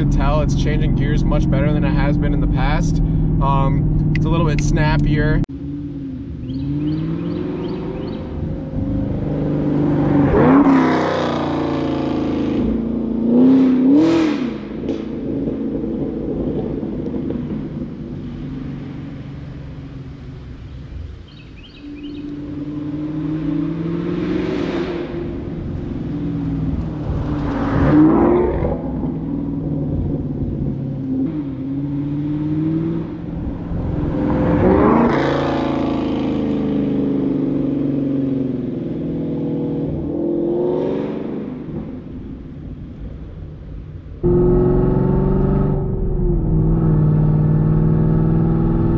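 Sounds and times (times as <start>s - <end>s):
car engine revving through gears: 6.2s - 17.6s, 21.6s - 41.9s, 44.2s - 48.9s.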